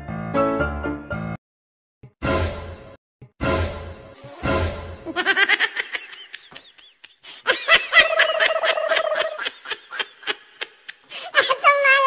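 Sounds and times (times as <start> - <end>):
high-pitched giggling: 5.1 - 12.0.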